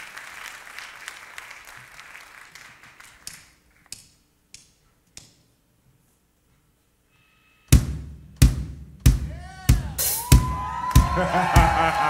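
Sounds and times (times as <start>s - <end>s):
audience applause: 0.0s - 3.3s, 10.4s - 12.0s
drumsticks clicking: 3.2s - 5.5s.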